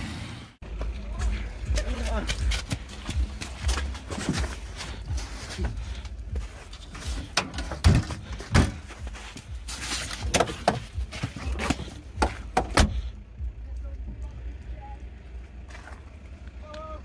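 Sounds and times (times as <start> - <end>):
footsteps on wet slush: 0.7 - 7.3, 8.2 - 12.4
car door opening: 10.1 - 13.0.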